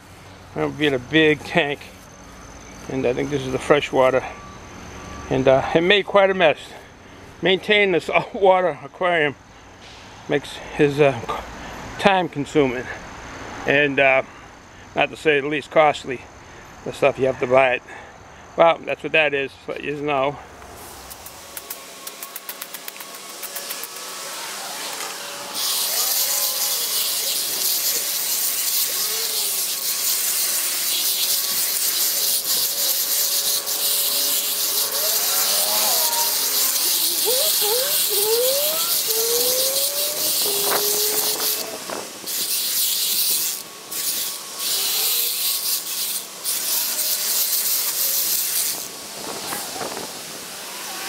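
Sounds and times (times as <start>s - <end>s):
power tool whining cutting brush: 21.1s - 51.0s
short squeals: 24.2s - 29.9s, 31.0s - 42.5s.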